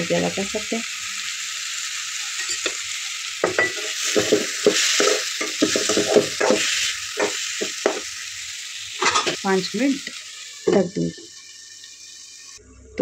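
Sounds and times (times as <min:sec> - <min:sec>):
food sizzling in a pan: 0:00.0 - 0:12.7
spoon scraping and knocking pan: 0:02.4 - 0:02.8, 0:03.4 - 0:08.1, 0:09.0 - 0:09.4.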